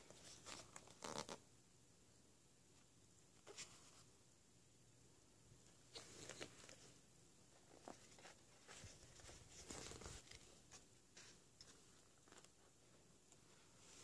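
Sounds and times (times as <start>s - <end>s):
book pages rustling: 0.0s - 1.4s, 5.9s - 14.0s.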